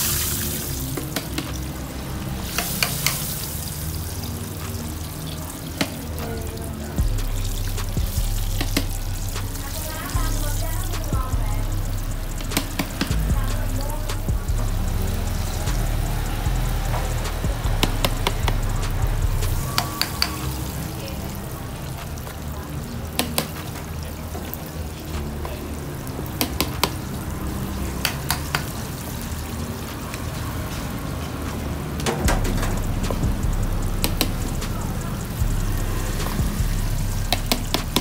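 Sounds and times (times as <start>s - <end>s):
background music with bass: 0.0s - 38.0s
utensil clicking against bowls: 12.4s - 13.3s.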